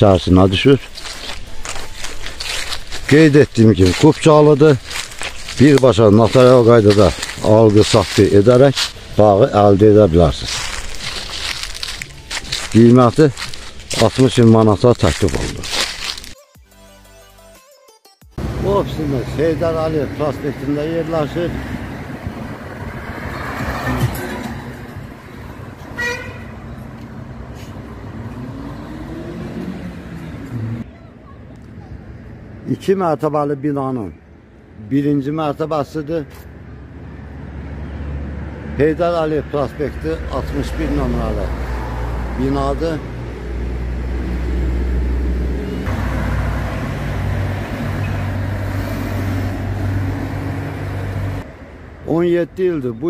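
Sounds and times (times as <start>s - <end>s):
cars and truck driving past: 18.4s - 30.9s, 35.6s - 53.0s
car swishing past: 21.5s - 25.0s
vehicle horn toot: 25.9s - 26.6s
vehicle engine accelerating: 26.7s - 30.8s, 36.9s - 51.5s
low engine hum: 43.1s - 51.6s.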